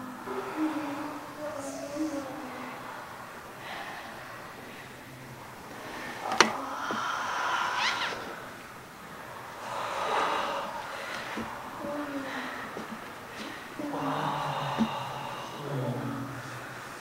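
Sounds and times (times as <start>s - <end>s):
people breathing hard and gasping: 0.0s - 17.0s.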